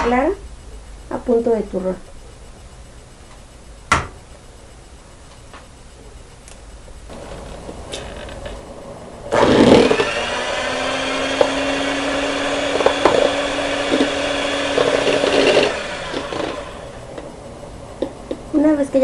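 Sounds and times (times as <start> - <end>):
electric hand mixer running: 7.1 - 18.5.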